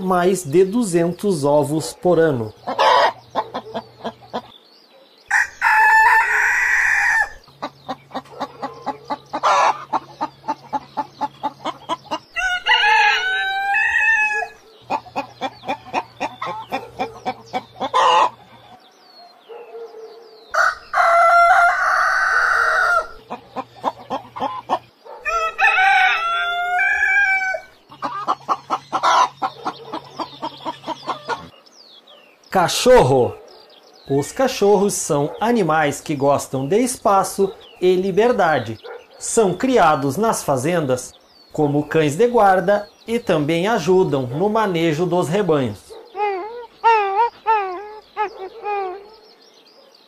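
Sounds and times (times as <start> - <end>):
hens clucking: 0.0 - 4.6, 5.3 - 18.9, 20.6 - 31.7, 41.6 - 49.2
roosters crowing: 0.9 - 4.6, 5.2 - 31.8, 41.9 - 49.7.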